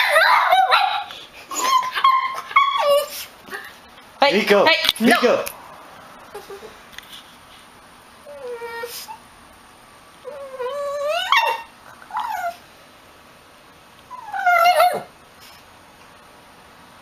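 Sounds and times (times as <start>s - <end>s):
dog whining: 0.0s - 3.8s, 8.2s - 9.2s, 10.2s - 12.7s, 14.1s - 15.1s.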